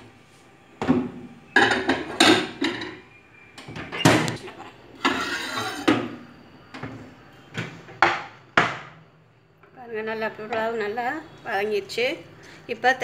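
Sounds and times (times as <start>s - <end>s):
glass dish scraping: 4.4s - 6.2s.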